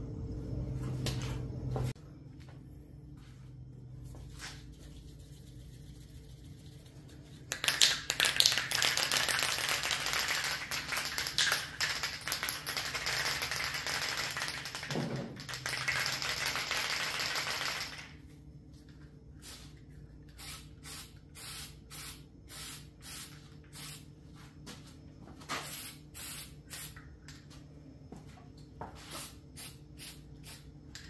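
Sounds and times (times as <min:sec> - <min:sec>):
aerosol can spraying hiss: 0:20.4 - 0:24.0.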